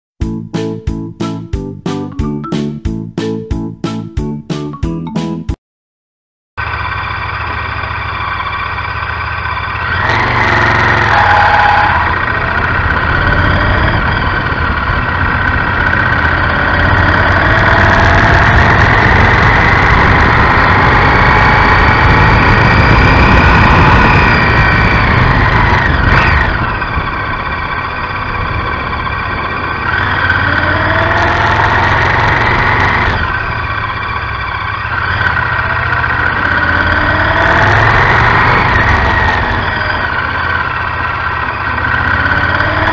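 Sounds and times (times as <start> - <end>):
motorcycle engine revving: 6.6 - 42.9.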